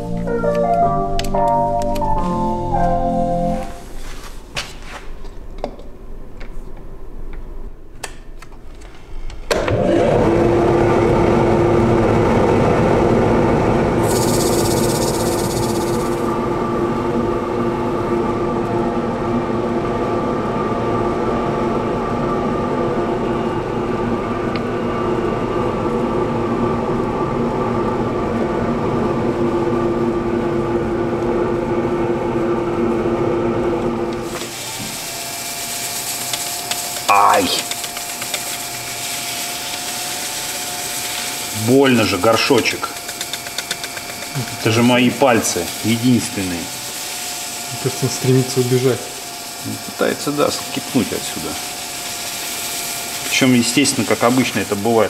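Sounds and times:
wood lathe humming: 9.5s - 20.4s, 33.7s - 55.0s
sandpaper hissing on spinning wood: 14.0s - 16.3s, 34.4s - 55.0s.

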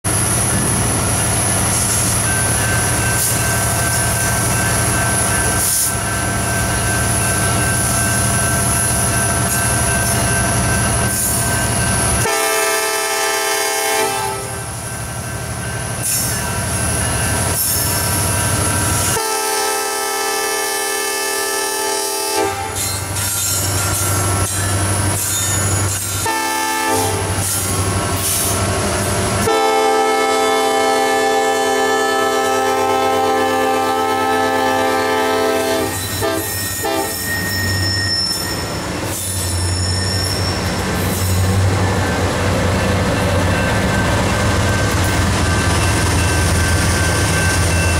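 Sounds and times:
locomotive engine and wheels rumbling: 0.1s - 47.9s
train air horn blasts: 12.2s - 14.7s, 19.1s - 22.9s, 26.2s - 27.5s, 29.4s - 37.3s.

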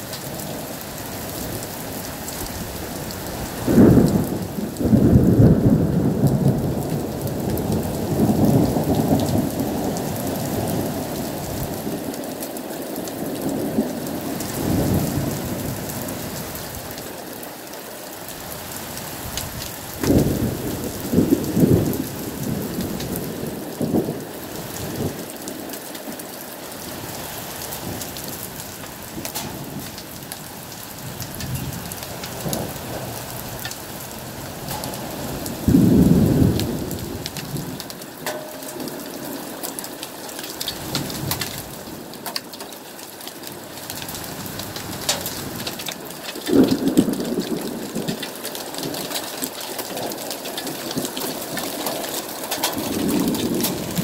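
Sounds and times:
heavy rain pouring: 0.0s - 54.0s
thunder rumbling: 1.5s - 17.2s, 19.2s - 25.4s, 27.7s - 39.4s, 44.0s - 49.1s, 49.8s - 54.0s.

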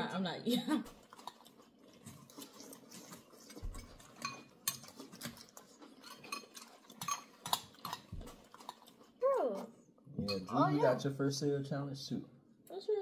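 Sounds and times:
spoons clinking on glass bowls: 3.8s - 5.0s, 6.0s - 8.0s.

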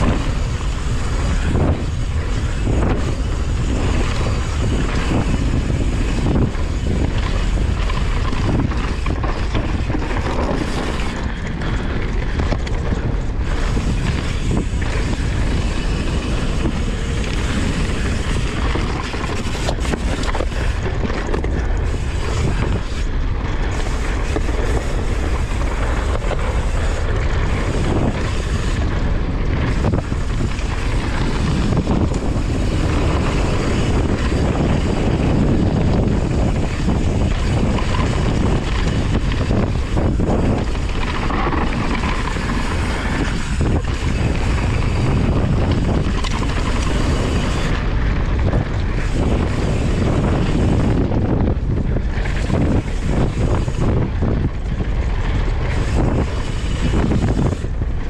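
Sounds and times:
bike clattering over bumps: 0.0s - 58.0s
bike tyres rolling on dirt: 0.0s - 58.0s
wind on microphone: 0.0s - 58.0s.

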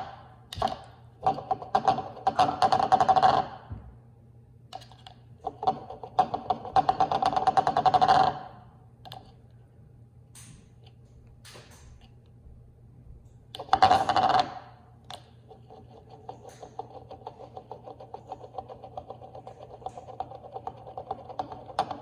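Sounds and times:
glass tumbler spinning on stone: 5.4s - 8.5s, 13.6s - 14.7s, 15.5s - 22.0s.

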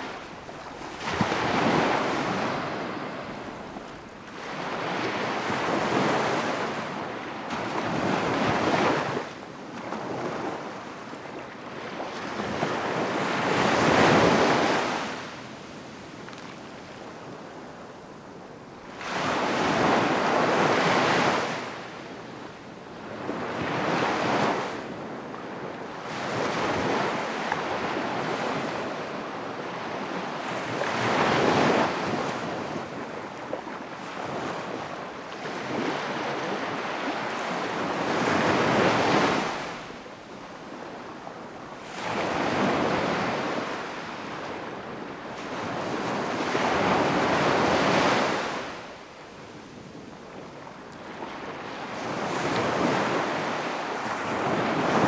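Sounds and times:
ocean waves breaking: 0.0s - 10.8s.

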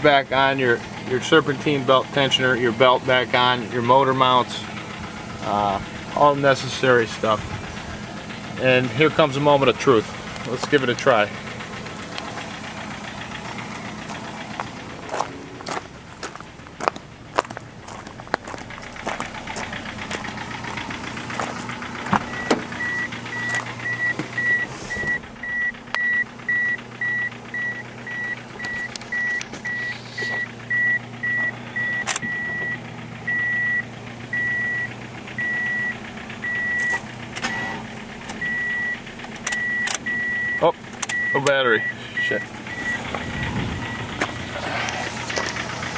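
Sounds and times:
dashboard warning chime beeping: 21.6s - 44.2s.

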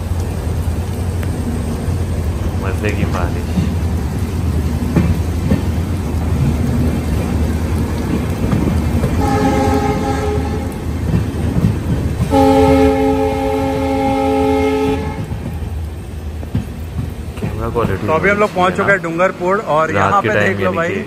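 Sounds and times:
train rumbling over rails: 0.0s - 21.0s
locomotive horn blasts: 9.2s - 10.8s, 12.2s - 15.4s.

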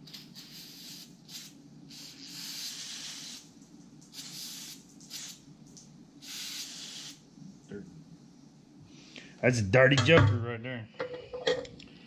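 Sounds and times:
aerosol spray hissing: 0.0s - 3.5s, 4.1s - 5.4s, 6.2s - 7.2s.

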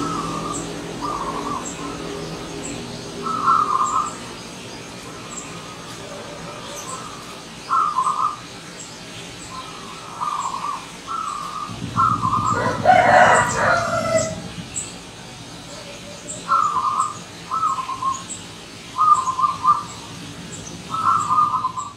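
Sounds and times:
dove cooing: 3.2s - 4.2s, 5.6s - 8.4s, 9.7s - 14.8s, 15.6s - 18.2s, 19.0s - 19.9s, 20.9s - 21.9s
louder lower bird call: 10.2s - 14.9s.

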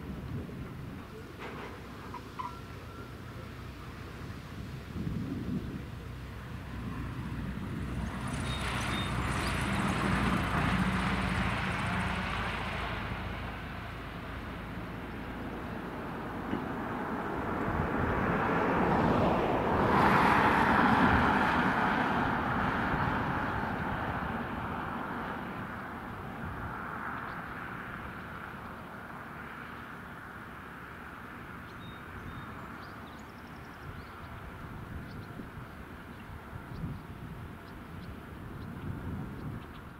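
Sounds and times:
propeller plane engine: 5.0s - 36.8s.

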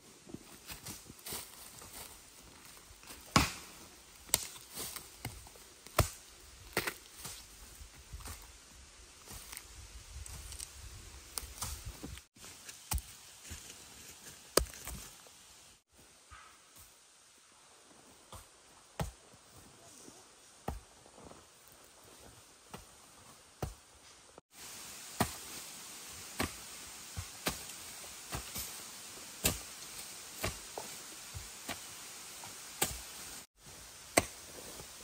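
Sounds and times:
digging tool striking earth: 3.2s - 7.4s, 25.2s - 25.6s, 26.2s - 33.1s, 34.1s - 34.8s.

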